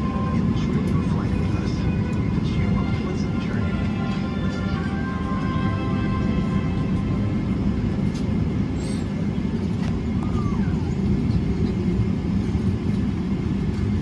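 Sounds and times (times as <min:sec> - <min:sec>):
airliner cabin rumble: 0:00.0 - 0:14.0.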